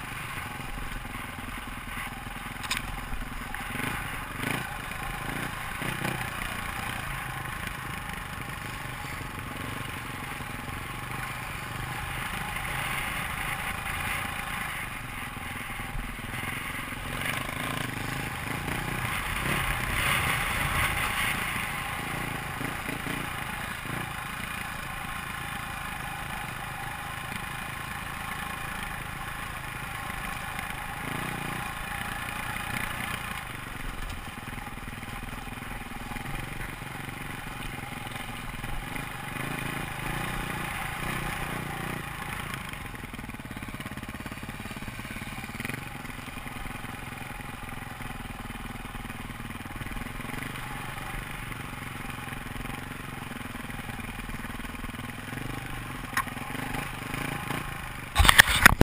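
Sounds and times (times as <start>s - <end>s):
dirt bike engine running: 0.0s - 58.8s
rattle from rough ground: 0.0s - 58.8s
loud clatter: 58.1s - 58.8s.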